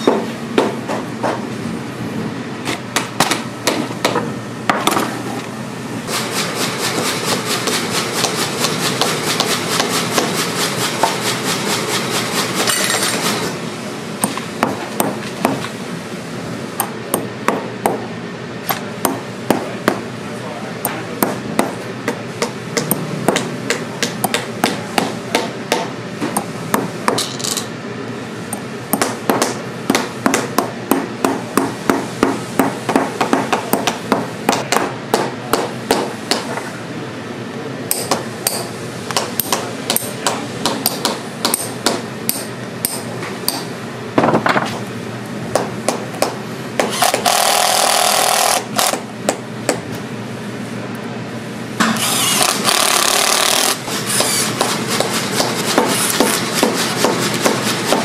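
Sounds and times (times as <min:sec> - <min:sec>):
cordless drill running: 0:46.9 - 0:48.9, 0:52.0 - 0:54.5.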